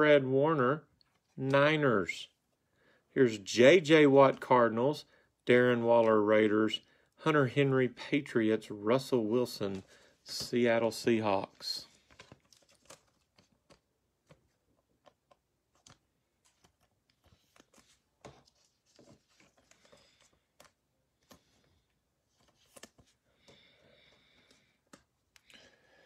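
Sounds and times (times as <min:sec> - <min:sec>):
trading cards being flipped: 0:11.8 - 0:21.7, 0:22.3 - 0:23.6.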